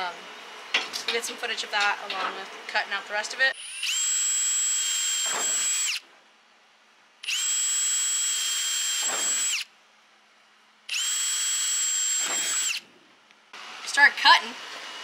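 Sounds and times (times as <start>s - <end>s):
cordless drill whining: 3.6s - 6.0s, 7.2s - 9.7s, 10.9s - 12.8s.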